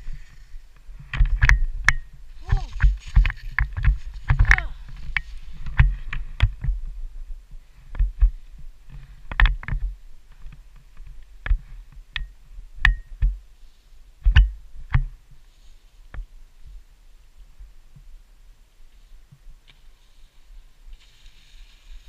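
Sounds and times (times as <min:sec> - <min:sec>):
skis knocking and thumping on snow: 0:00.0 - 0:07.0, 0:07.8 - 0:12.0, 0:18.9 - 0:22.0.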